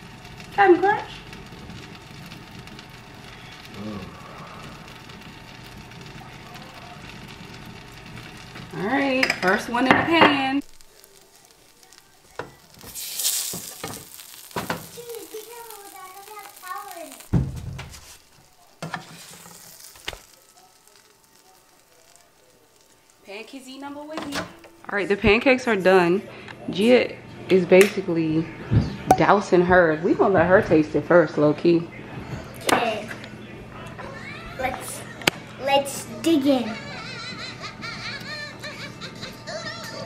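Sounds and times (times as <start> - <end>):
frying pan sizzling: 0.0 - 28.3, 29.1 - 40.0
faint voice: 3.8 - 4.8.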